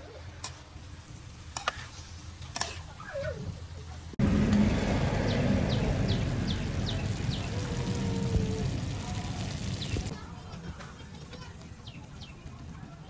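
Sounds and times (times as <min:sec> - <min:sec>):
gas stove rumble and hiss: 0:00.0 - 0:10.2
metal spatula scraping a wok: 0:01.6 - 0:02.9
high falling bird chirps: 0:05.0 - 0:08.2.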